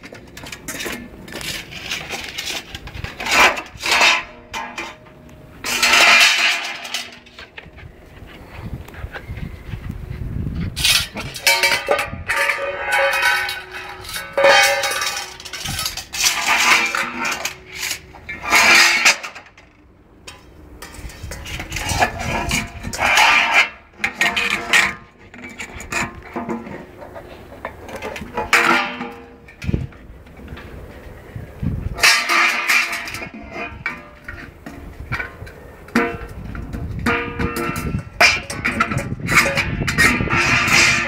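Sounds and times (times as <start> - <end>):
metal bowl clanging on concrete: 10.8 - 19.2, 32.0 - 41.0.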